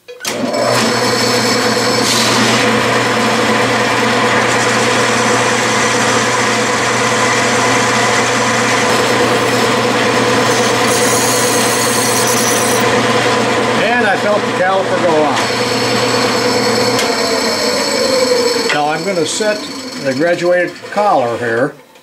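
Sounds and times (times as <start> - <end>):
metal lathe running: 0.3 - 22.0
high tones: 10.4 - 12.9, 16.4 - 20.8.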